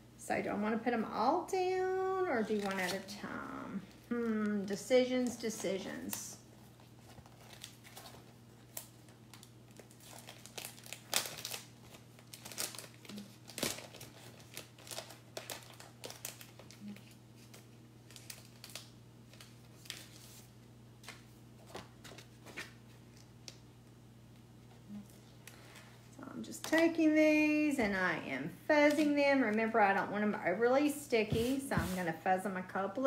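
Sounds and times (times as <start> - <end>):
plastic sheets crinkling: 2.2 - 23.6.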